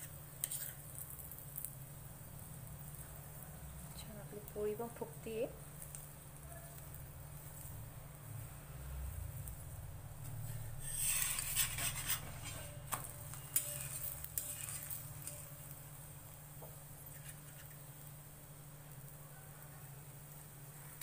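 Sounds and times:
spoon clinking and scraping on griddle: 0.0s - 1.9s, 10.2s - 15.8s, 16.6s - 18.1s
ghee sizzling: 0.0s - 21.0s.

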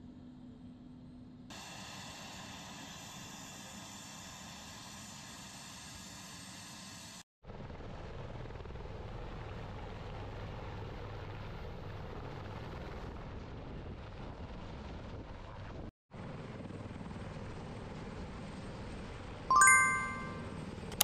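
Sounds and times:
helicopter rotors and turbines: 0.0s - 19.5s.

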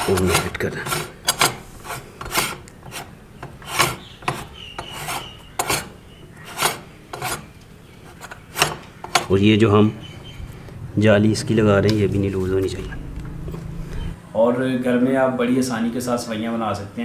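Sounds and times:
metal thread rasping scrapes: 0.0s - 9.4s.

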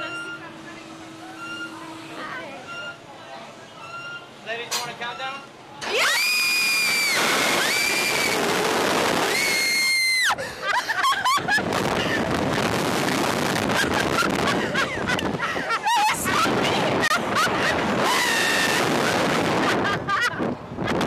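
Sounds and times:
people screaming: 5.8s - 8.5s, 9.2s - 10.4s, 17.9s - 19.3s
wind rushing on microphone: 11.3s - 21.0s.

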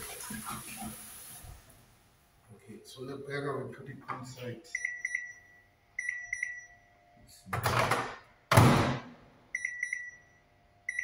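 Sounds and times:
microwave keypad beeps: 4.7s - 6.9s, 9.5s - 11.0s.

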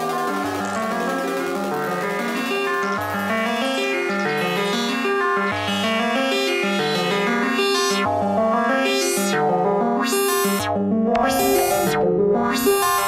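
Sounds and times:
synthesizer chords: 0.0s - 13.0s.

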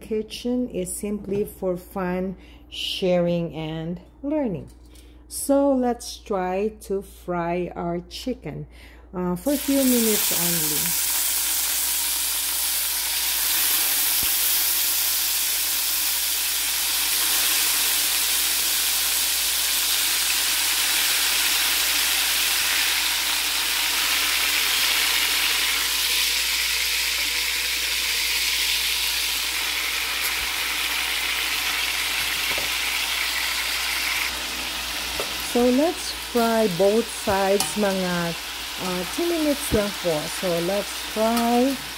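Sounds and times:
chicken sizzling in hot oil: 9.5s - 41.9s.

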